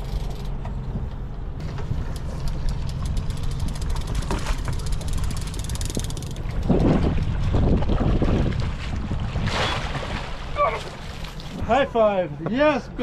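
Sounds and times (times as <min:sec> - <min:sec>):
boat engine idling: 0:00.0 - 0:09.2
fishing reel clicking: 0:02.1 - 0:06.9.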